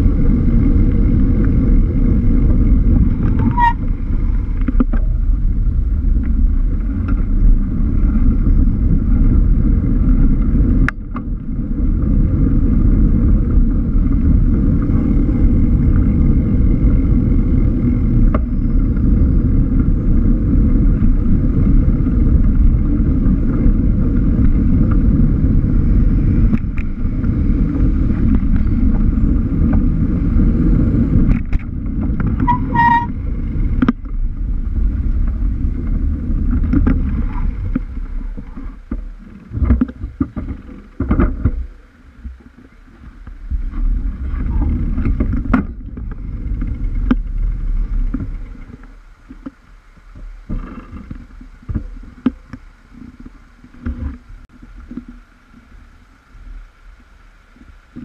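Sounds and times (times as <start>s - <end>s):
road and vehicle noise: 0.0s - 58.0s
wind buffeting microphone: 0.0s - 58.0s.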